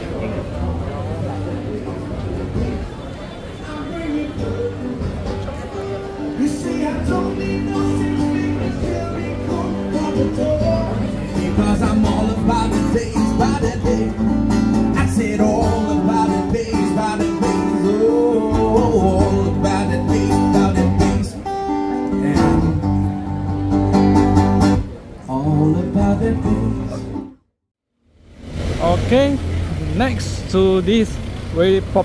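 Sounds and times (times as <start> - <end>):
guitar accompaniment: 3.5 - 27.4
man singing into a microphone: 3.6 - 5.2, 6.2 - 23.1, 25.3 - 27.2.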